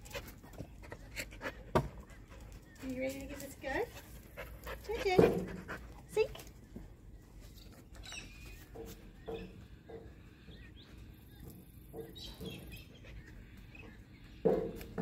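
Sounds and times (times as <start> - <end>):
dog breathing and sniffing: 0.0 - 6.4.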